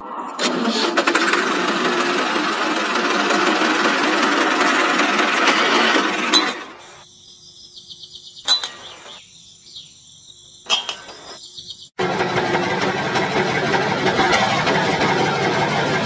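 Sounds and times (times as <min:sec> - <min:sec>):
small motor droning: 0:00.0 - 0:07.0.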